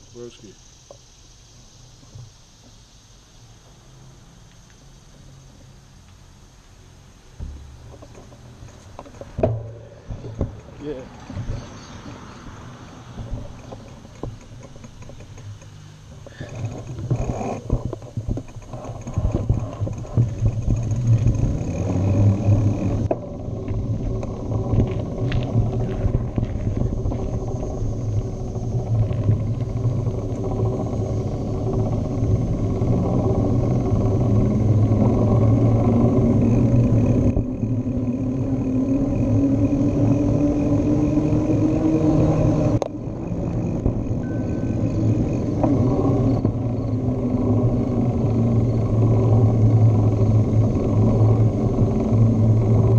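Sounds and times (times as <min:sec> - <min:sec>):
bike road noise: 0:00.0 - 0:52.9
wind on microphone: 0:16.3 - 0:52.9
low hum rising in pitch: 0:19.1 - 0:52.9.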